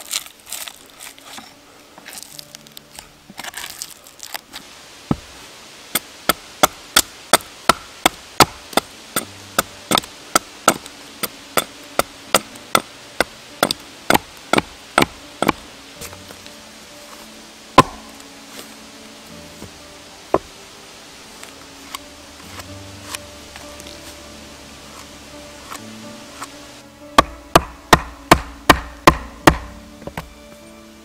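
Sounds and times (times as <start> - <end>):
hatchet chopping into log: 12.4 - 15.6, 17.8 - 18.1, 27.2 - 30.2.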